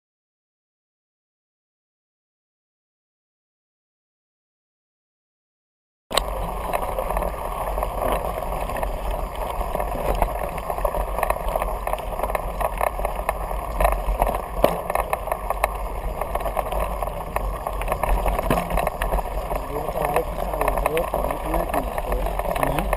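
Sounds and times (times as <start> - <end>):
bike tyres rumbling on gravel: 6.1 - 22.9
stones clicking and knocking: 6.1 - 22.9.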